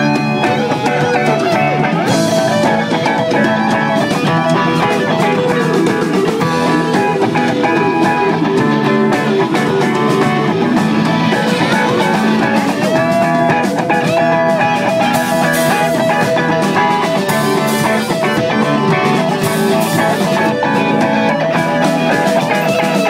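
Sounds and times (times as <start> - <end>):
electric guitar bending notes: 0.0 - 23.0
live rock band playing: 0.0 - 23.0
steady drum beat: 0.0 - 23.0.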